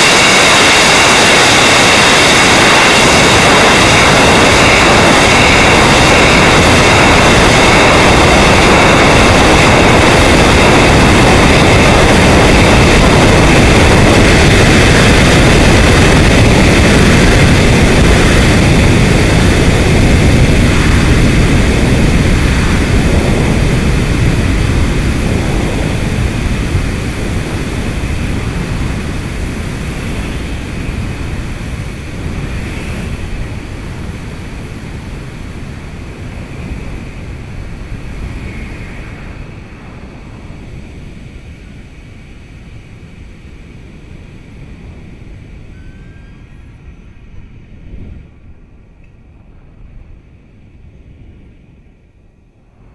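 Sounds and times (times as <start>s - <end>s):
rocket rushing roar: 0.0s - 45.6s.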